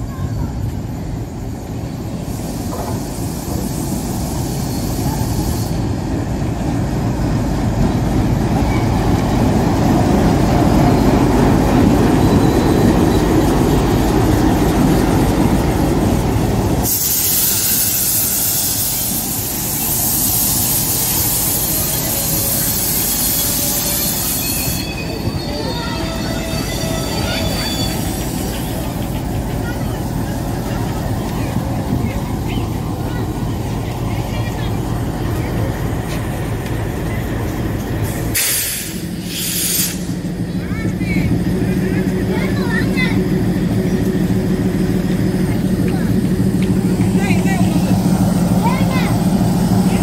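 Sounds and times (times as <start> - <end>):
locomotive rumble: 0.0 - 50.0
wheel and brake squeal: 0.1 - 6.2, 10.6 - 13.6, 16.8 - 29.3
high hiss of passing coaches: 1.7 - 6.2, 14.0 - 40.5.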